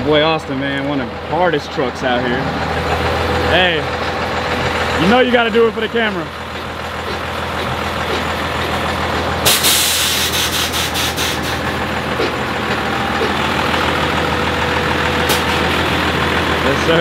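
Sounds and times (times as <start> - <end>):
pickup truck engine running: 0.0 - 17.0
pulsing hiss of air: 7.1 - 12.4.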